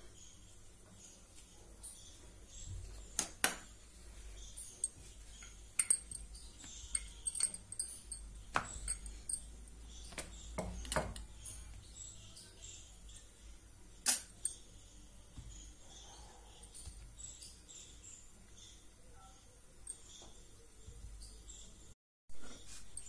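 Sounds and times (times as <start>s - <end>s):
metallic clinks of spoon and bowl: 5.8s - 9.5s.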